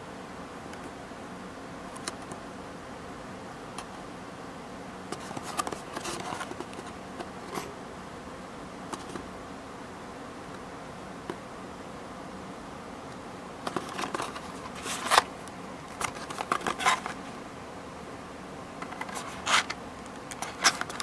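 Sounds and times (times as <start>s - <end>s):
steady background hiss: 0.0s - 21.0s
cardboard box clicks and rustles: 5.2s - 6.9s, 13.7s - 15.3s, 15.9s - 17.3s.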